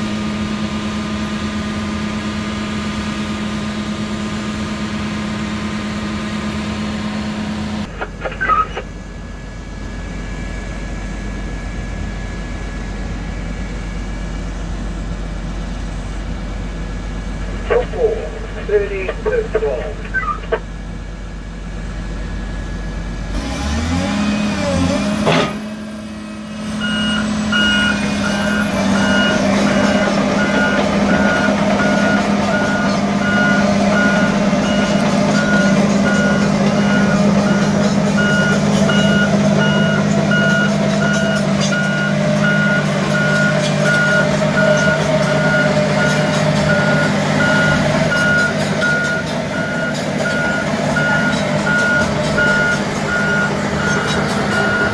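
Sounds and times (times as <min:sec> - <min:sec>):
heavy diesel engine revving: 0:21.8 - 0:54.9
travel alarm beeping: 0:26.8 - 0:54.9.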